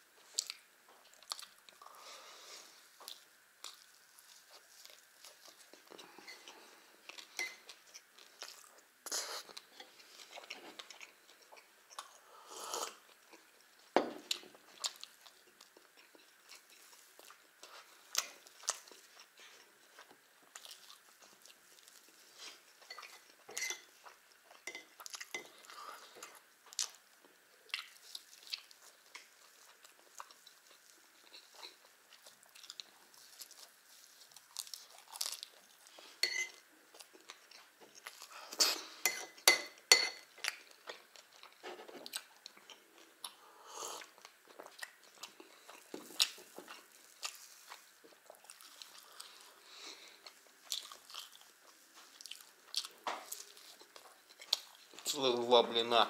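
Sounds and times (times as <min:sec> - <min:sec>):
man chewing food: 0:00.1 - 0:55.2.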